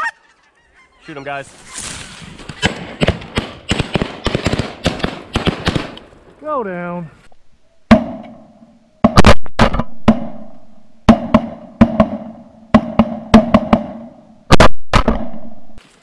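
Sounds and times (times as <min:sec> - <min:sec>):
shotgun blasts: 0:02.4 - 0:06.0.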